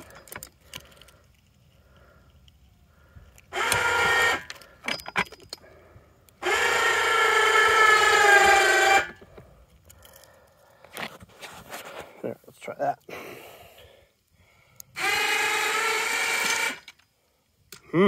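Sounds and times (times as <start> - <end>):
electric hoist motor whining: 3.5 - 4.6, 6.4 - 9.2, 15.0 - 16.9.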